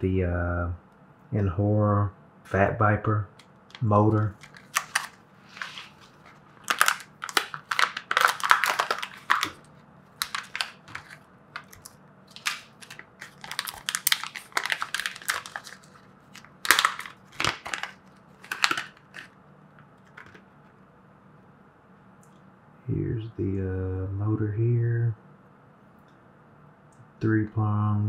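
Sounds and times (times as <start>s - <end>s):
plastic packaging crinkling and tearing: 3.7s - 19.4s, 20.0s - 20.4s.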